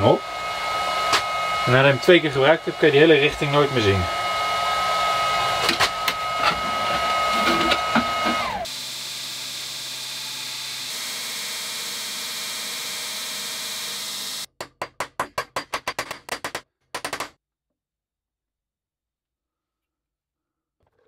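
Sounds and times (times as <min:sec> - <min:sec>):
belt grinder hissing: 0:00.0 - 0:14.5.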